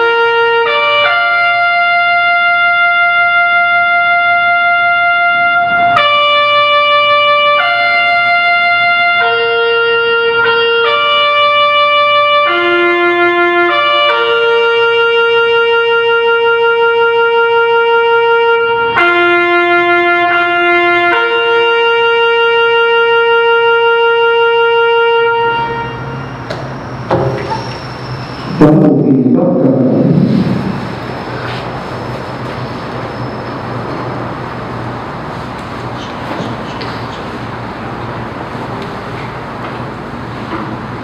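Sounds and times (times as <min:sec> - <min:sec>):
bugle playing slow call: 0:00.0 - 0:26.4.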